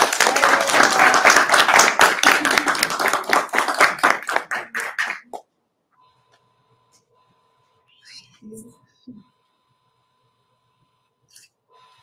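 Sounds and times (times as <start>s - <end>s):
small group applauding: 0.0s - 5.5s.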